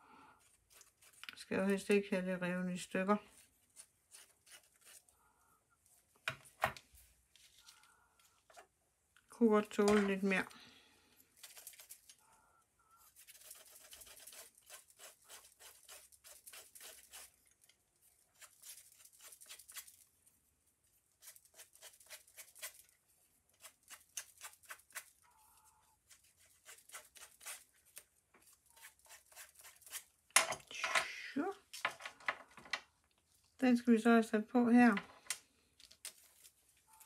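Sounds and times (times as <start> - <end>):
hand tool scraping paper card: 3.7 - 5.1, 13.1 - 17.4, 18.3 - 20.0, 21.2 - 22.9, 23.5 - 25.2, 26.0 - 30.1.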